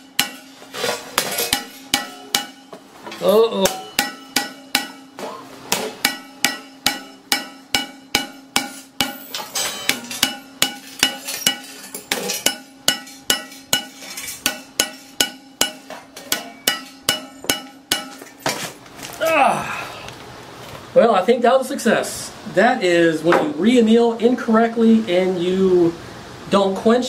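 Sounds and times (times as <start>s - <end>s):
cymbal cracking and shattering: 0.0s - 2.7s, 5.9s - 18.6s.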